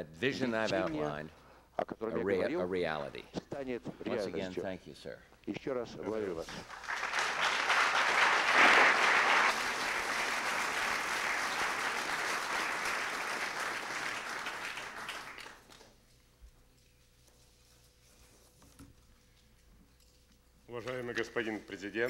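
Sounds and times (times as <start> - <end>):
audience applause: 6.4 - 15.8.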